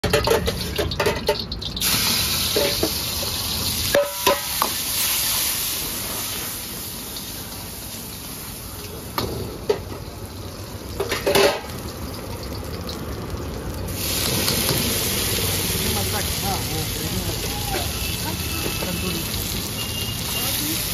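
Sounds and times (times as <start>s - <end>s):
vegetables sizzling in oil: 0.0s - 20.9s
ladle scraping a wok: 0.1s - 5.5s.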